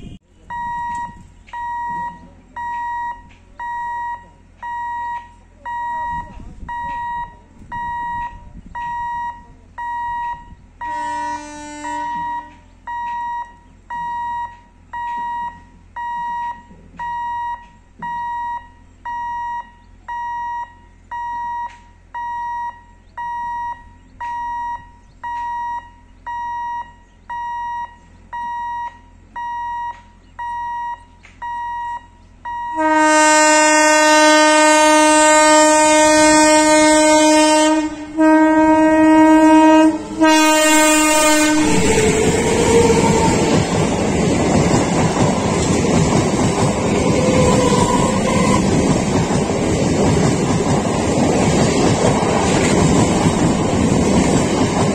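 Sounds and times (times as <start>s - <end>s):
short horn blast: 0.0s - 0.3s, 10.8s - 12.7s, 32.7s - 41.9s, 47.2s - 48.8s
level-crossing alarm beeping: 0.0s - 11.0s, 12.0s - 33.0s, 39.4s - 49.1s
train horn sounding long: 10.8s - 12.7s, 32.7s - 44.2s, 46.7s - 49.0s.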